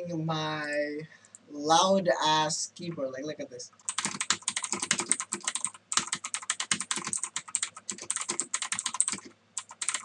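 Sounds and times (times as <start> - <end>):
mechanical keyboard typing: 3.8 - 10.0.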